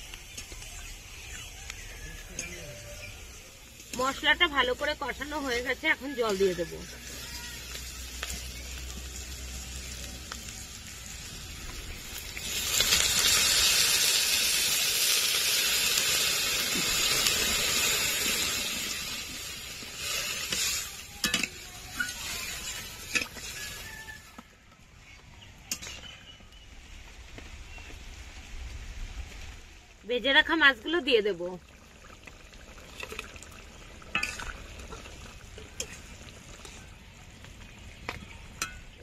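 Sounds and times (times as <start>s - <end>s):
vegetables sizzling in a pan: 0.0s - 24.4s, 29.2s - 39.0s
water poured into hot pan hissing: 2.9s - 24.3s, 31.1s - 37.2s.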